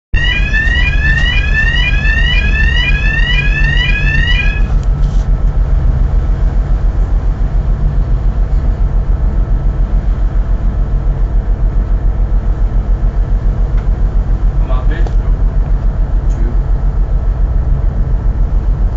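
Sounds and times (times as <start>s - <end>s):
electronic alarm whooping: 0.1s - 4.8s
boat engine throbbing: 0.1s - 18.9s.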